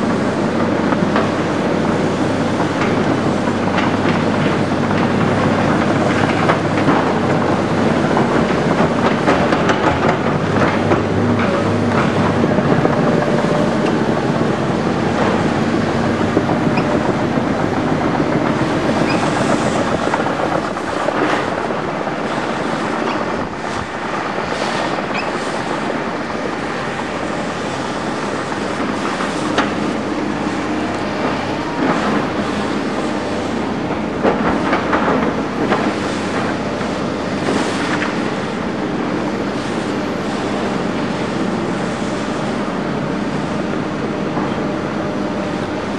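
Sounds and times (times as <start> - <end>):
diesel engine running: 0.0 - 45.9
steel tracks clattering: 0.0 - 45.9
track squeaks and knocks: 16.4 - 17.2, 18.4 - 20.3, 25.1 - 25.4.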